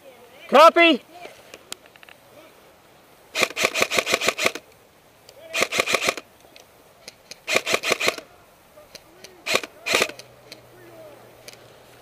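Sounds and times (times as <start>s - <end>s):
airsoft rifle bursts: 3.3s - 4.7s, 5.3s - 6.3s, 7.0s - 10.7s.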